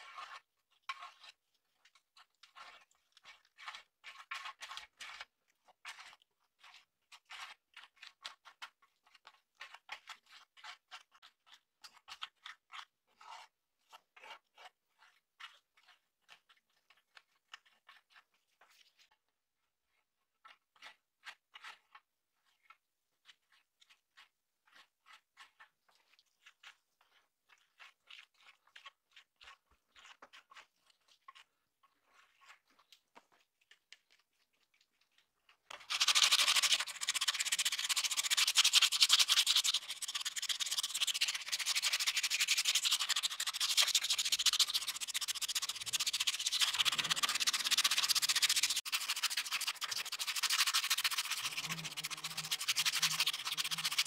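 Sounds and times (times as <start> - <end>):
plastic card scraping metal: 35.8 - 54.0.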